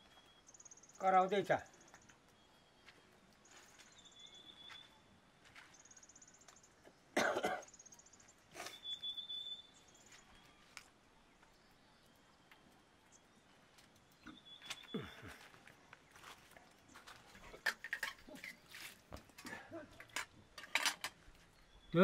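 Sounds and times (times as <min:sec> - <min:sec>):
thin high chirp: 0:07.7 - 0:10.9, 0:11.5 - 0:15.3.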